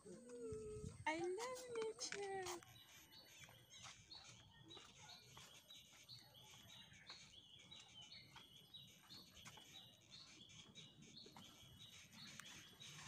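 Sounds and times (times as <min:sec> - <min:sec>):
birds chirping: 0:00.0 - 0:13.0
footsteps on dirt trail: 0:00.2 - 0:10.2.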